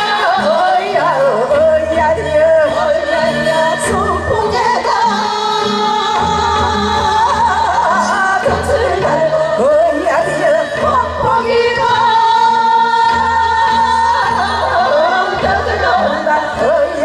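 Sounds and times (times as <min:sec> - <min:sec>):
women singing into microphones: 0:00.0 - 0:17.0.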